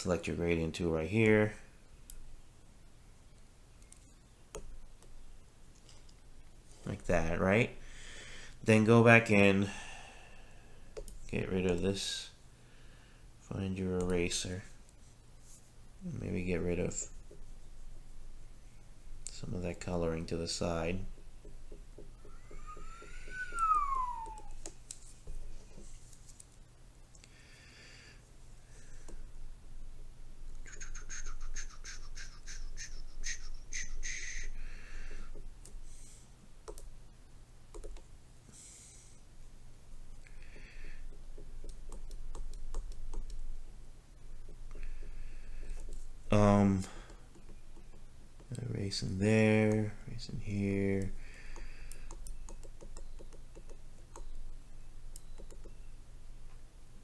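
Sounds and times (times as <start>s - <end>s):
stylus tapping: 21.0s - 25.9s, 36.6s - 36.9s, 37.7s - 38.1s, 40.2s - 43.6s, 44.4s - 46.2s, 46.9s - 48.6s, 51.3s - 55.8s
stylus scratching on glass screen: 30.6s - 34.5s
stylus tapping on glass screen: 51.5s - 54.3s, 55.2s - 55.8s.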